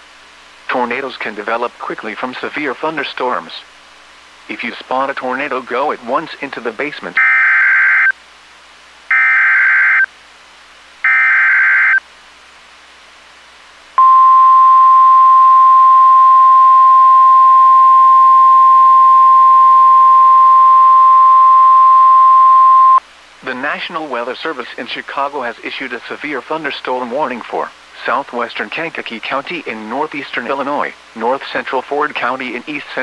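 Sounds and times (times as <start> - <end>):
screeching data tones: 9.1 - 10.1, 11.0 - 12.0
steady warning alarm tone: 9.1 - 10.1, 11.0 - 12.0, 14.0 - 23.0.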